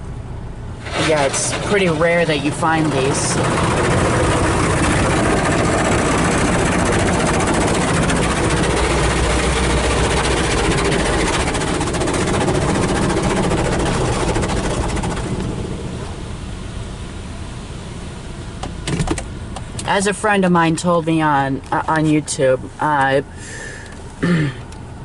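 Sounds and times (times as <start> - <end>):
car wash spraying water: 0.7 - 20.7.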